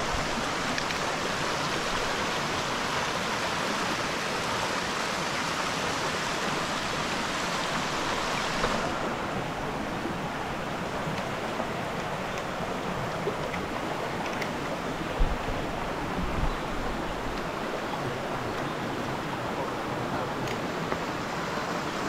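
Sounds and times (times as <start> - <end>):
waterfall rushing: 0.0 - 22.0.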